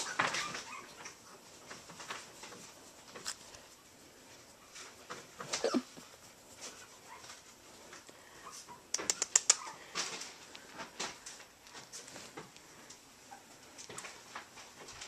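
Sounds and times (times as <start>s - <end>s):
puppy yipping: 0.0s - 1.2s, 7.0s - 7.4s, 9.5s - 9.8s
rustling: 0.0s - 15.0s
sharp clicks: 8.9s - 9.6s.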